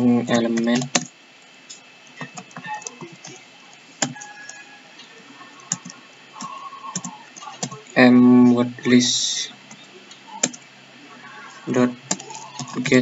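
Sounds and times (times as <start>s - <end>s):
keyboard keystrokes: 10.4s - 10.6s.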